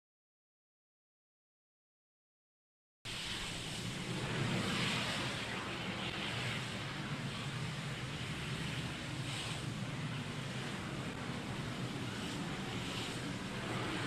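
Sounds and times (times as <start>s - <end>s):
jet engines running: 3.1s - 14.0s.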